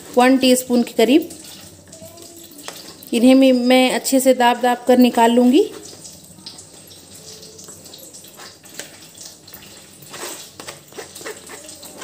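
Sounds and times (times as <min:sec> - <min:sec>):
spatula scraping wet paste through strainer: 0:08.2 - 0:12.0.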